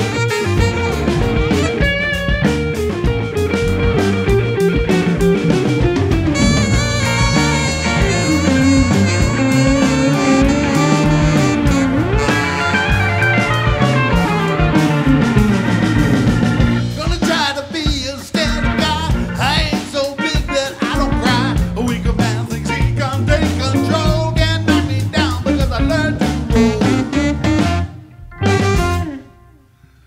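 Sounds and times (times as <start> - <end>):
saxophone: 0.0 - 16.8, 25.8 - 30.0
live band playing ska-funk: 0.0 - 29.6
person singing: 16.9 - 27.3.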